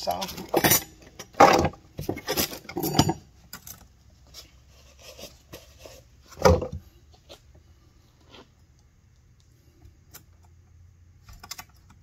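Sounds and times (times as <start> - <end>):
metal tool clinking on chain: 2.3 - 3.8.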